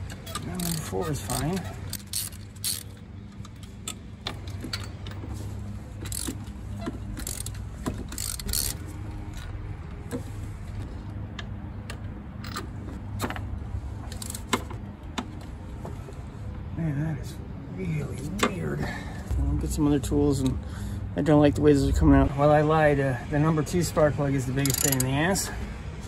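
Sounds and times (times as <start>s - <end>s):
ratchet clicking and clinking: 0.0s - 5.2s, 6.0s - 9.5s, 24.6s - 25.2s.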